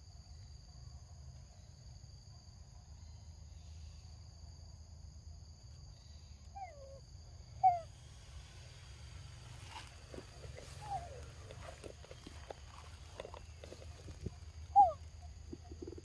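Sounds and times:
insects droning: 0:00.0 - 0:16.0
falling animal calls: 0:10.3 - 0:12.0, 0:14.1 - 0:16.0.

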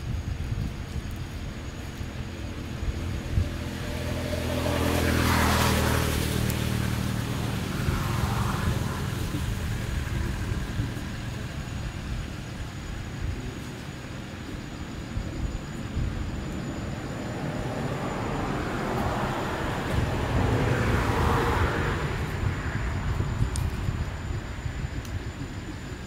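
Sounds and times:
vehicle driving past: 0:03.2 - 0:11.4, 0:16.9 - 0:23.2.

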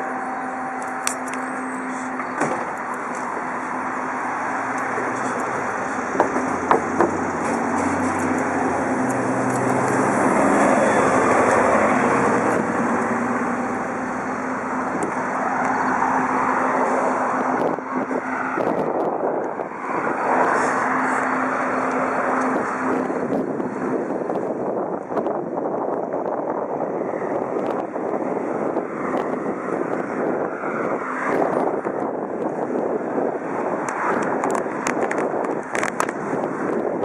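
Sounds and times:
low drone: 0:00.0 - 0:24.8
road traffic: 0:00.0 - 0:37.0
wind on microphone: 0:00.0 - 0:37.0
bicycle riding rushing noise: 0:00.9 - 0:37.0
knocks: 0:06.2 - 0:07.2.

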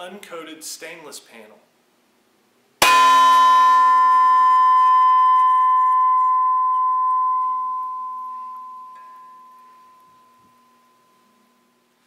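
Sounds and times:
steel panel ringing: 0:02.8 - 0:11.0.

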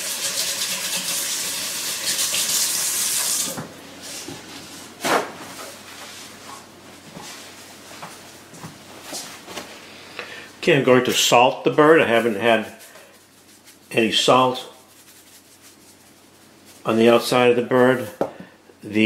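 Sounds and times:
tap water running: 0:00.0 - 0:03.6.

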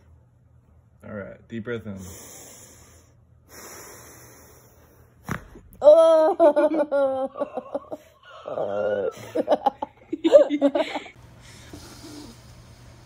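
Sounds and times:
person laughing: 0:05.8 - 0:11.2.

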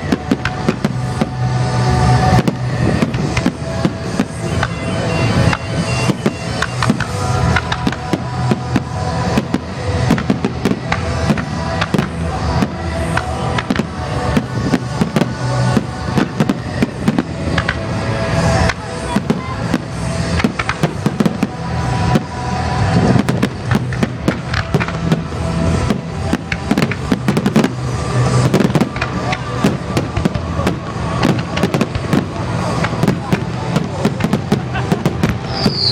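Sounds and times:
music playing: 0:00.0 - 0:35.9
firework shells bursting: 0:23.2 - 0:35.9.

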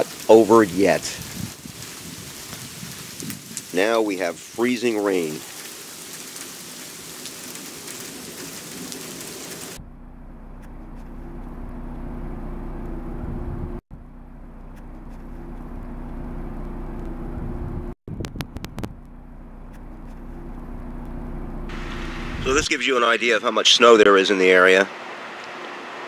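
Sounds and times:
freezing rain hissing: 0:00.0 - 0:09.8, 0:19.6 - 0:22.8
engine running: 0:09.4 - 0:22.7.

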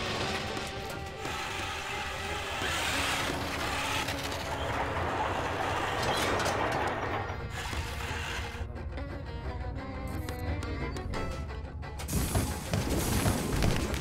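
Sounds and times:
robot motors whirring and rattling: 0:00.0 - 0:08.6.

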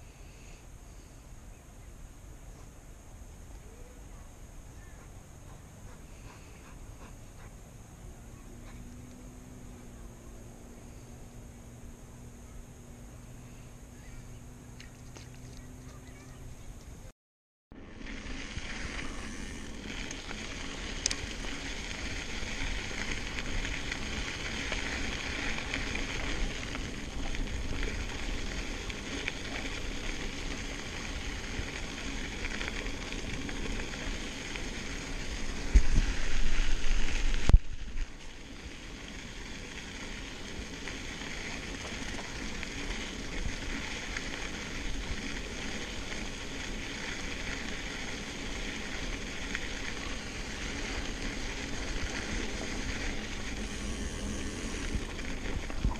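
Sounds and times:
bike tyres crunching on gravel: 0:17.7 - 0:55.9.

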